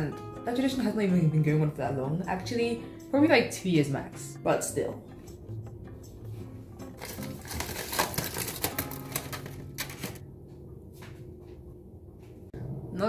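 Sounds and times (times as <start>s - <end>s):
steady low hum: 10.1s - 13.0s.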